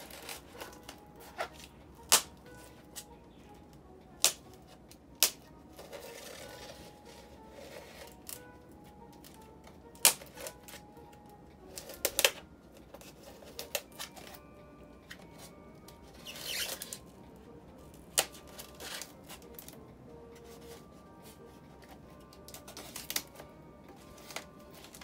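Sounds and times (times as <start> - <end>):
faint background music: 0.0 - 25.0
blade cutting packing tape: 16.2 - 17.0, 22.6 - 23.3.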